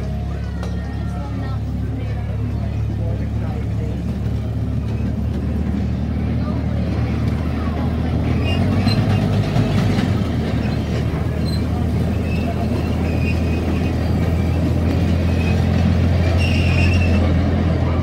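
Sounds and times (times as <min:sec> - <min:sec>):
ride train rolling on track: 0:00.0 - 0:18.0
high squeal: 0:15.3 - 0:17.3.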